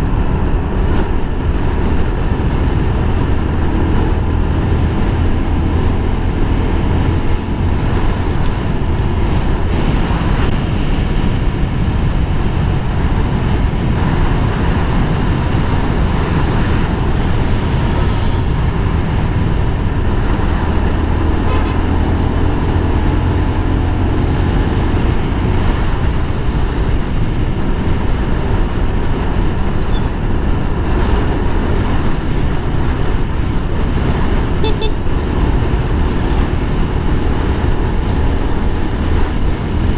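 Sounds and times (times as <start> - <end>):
motorcycle engine running: 0.0 - 39.9
wind rushing on microphone: 0.0 - 39.9.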